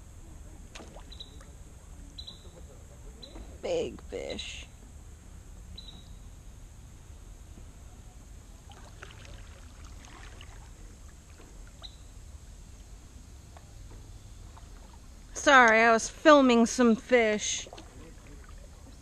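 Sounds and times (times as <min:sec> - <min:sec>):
kayak paddle dipping and dripping: 0:00.7 - 0:01.6, 0:08.6 - 0:12.1, 0:17.4 - 0:19.0.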